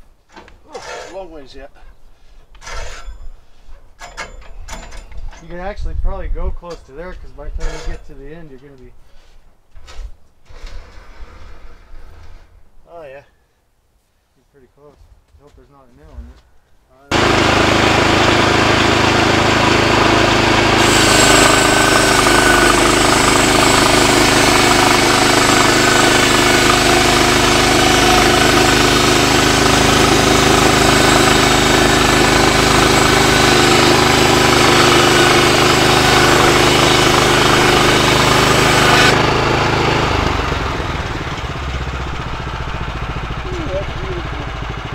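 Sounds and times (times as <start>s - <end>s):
band saw blade cutting wood: 0.7s - 1.4s, 2.6s - 3.2s, 17.1s - 41.4s
sawmill gas engine running: 17.1s - 44.9s.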